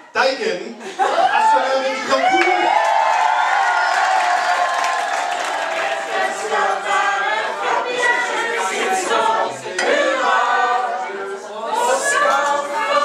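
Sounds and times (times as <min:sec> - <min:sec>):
crowd singing: 0:04.5 - 0:13.0.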